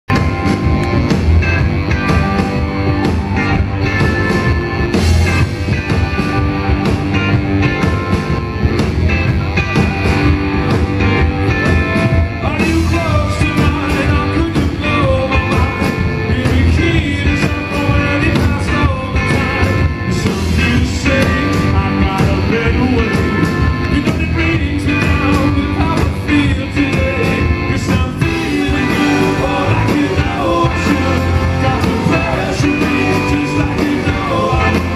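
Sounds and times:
rock band playing live: 0.1s - 34.9s
man singing lead: 11.6s - 34.9s.

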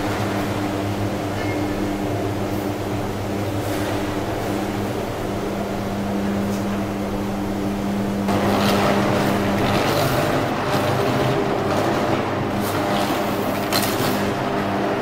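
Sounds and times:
electrical arc hum and buzz: 0.0s - 15.0s
loud rough noise: 8.2s - 15.0s.

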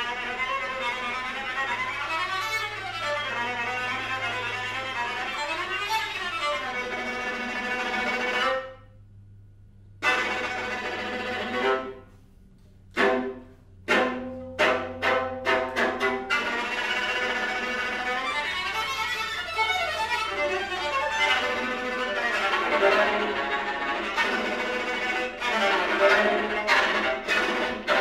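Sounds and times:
string quartet playing: 0.0s - 8.9s, 10.0s - 28.0s.

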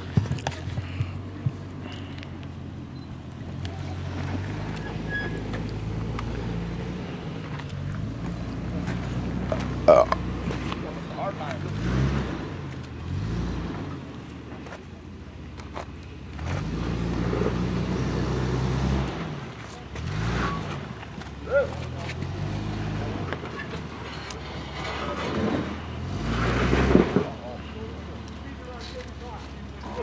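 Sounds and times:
engine revving: 3.4s - 14.4s, 16.3s - 28.8s.

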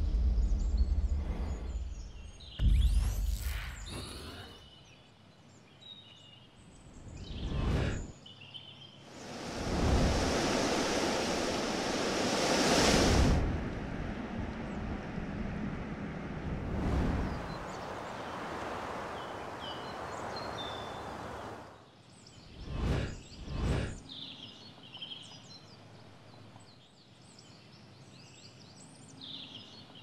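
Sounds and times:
quick whooshes: 9.1s - 13.8s, 22.6s - 24.0s
loud rushing noise: 9.1s - 21.7s
bird chirps: 17.5s - 25.8s.

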